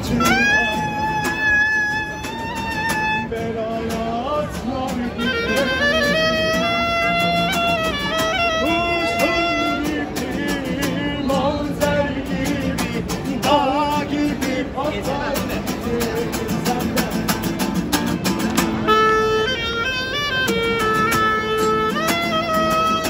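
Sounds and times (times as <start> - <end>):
clarinet melody: 0.0 - 3.3, 5.0 - 11.3, 18.6 - 23.0
acoustic guitar strumming: 0.0 - 23.0.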